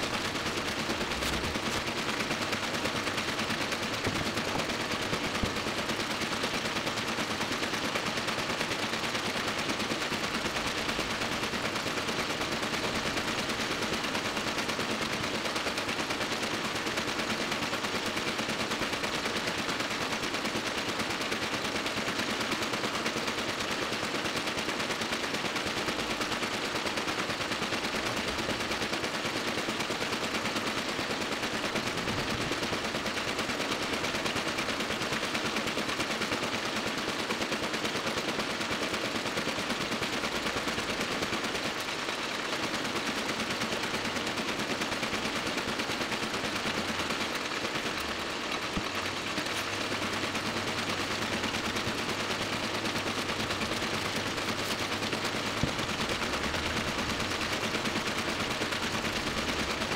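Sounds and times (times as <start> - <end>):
printing press clattering: 0.0 - 7.1, 46.3 - 59.9.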